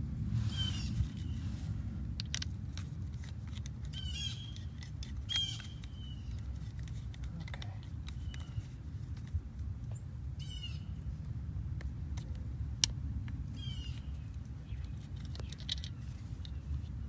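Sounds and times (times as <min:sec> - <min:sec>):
steady low rumble: 0:00.0 - 0:17.0
birds calling harshly: 0:00.4 - 0:01.6, 0:03.5 - 0:06.9, 0:07.5 - 0:09.1, 0:09.9 - 0:11.1, 0:13.5 - 0:17.0.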